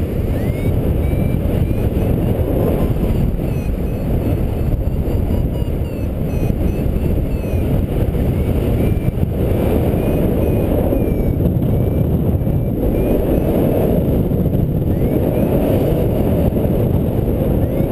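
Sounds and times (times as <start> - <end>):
wind rushing over microphone: 0.0 - 17.9
variometer beeping: 0.3 - 2.2.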